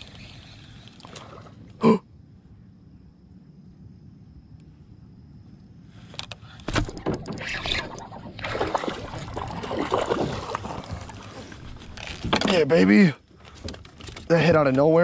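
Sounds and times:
fish splashing and thrashing: 6.7 - 12.6.

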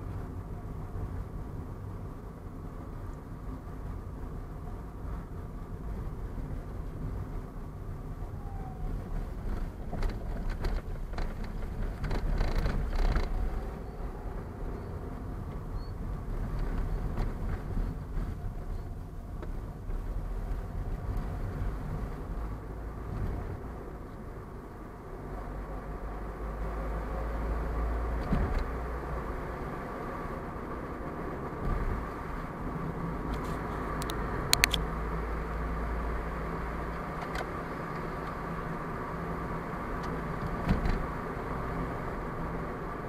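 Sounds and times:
car engine and tyre rumble: 0.0 - 43.0
thumps and rattles over rails: 9.4 - 13.7, 28.2 - 28.8, 40.4 - 41.2.

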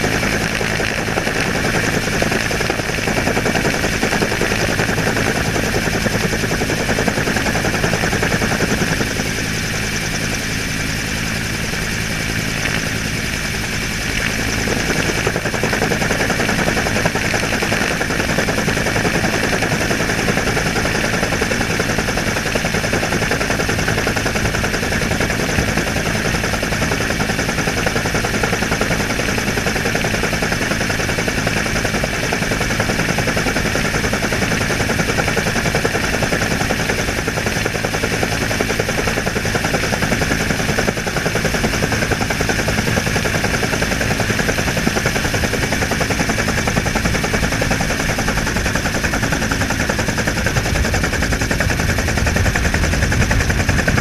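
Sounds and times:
helicopter rotor chop: 0.0 - 54.0.

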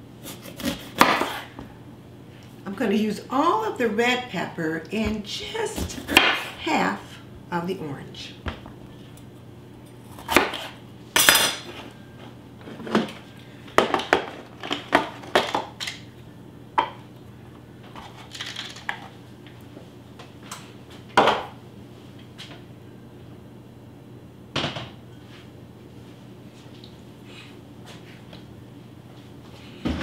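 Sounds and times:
utensils and dishes clinking: 11.2 - 11.8.

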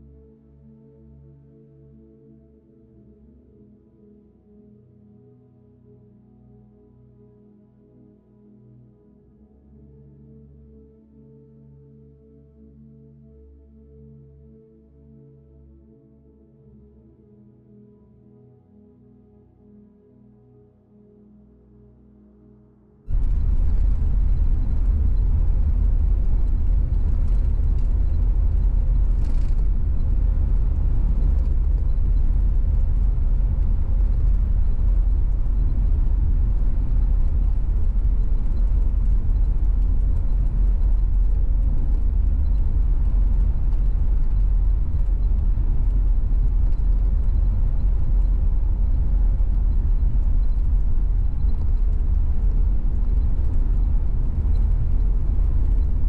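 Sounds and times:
car road and engine rumble: 23.1 - 56.0.

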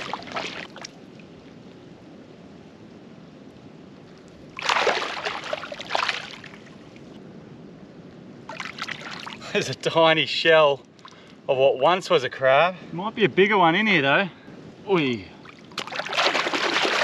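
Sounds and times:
water and mud sloshing: 0.0 - 1.4, 4.1 - 7.2, 8.5 - 10.0, 15.4 - 17.0
faint steady hiss: 0.0 - 16.0.

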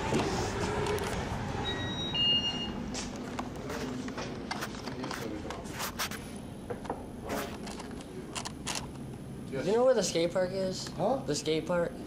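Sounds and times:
two-note electronic door chime: 1.6 - 2.8
footsteps: 2.9 - 6.2.

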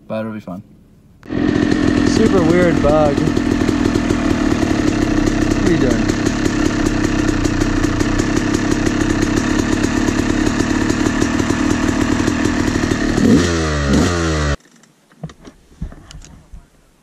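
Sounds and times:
dirt bike engine idling and revving: 1.2 - 14.6.

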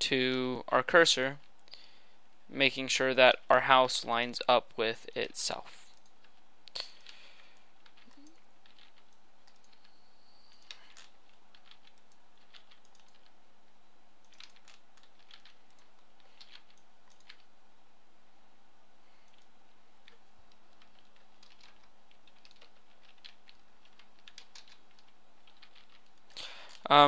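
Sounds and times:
low electrical hum: 0.0 - 27.0
keyboard and mouse clicks: 7.8 - 13.4, 14.2 - 17.5, 19.2 - 26.9.

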